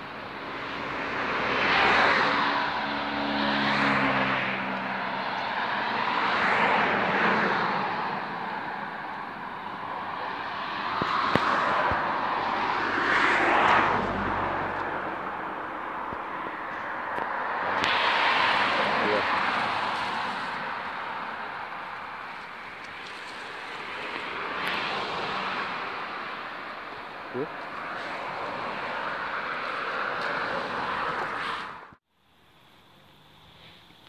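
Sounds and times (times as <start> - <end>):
cars passing: 0.0 - 34.0.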